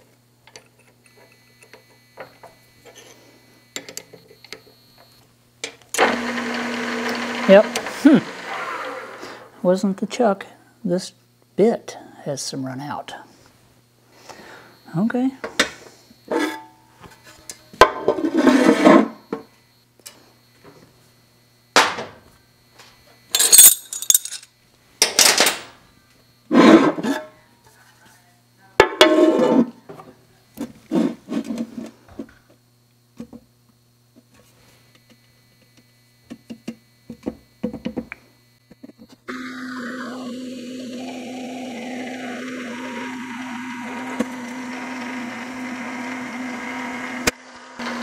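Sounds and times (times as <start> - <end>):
drill press motor running: 5.9 - 9.5, 35.0 - 48.0
metal clanks and clinks: 23.3 - 24.5.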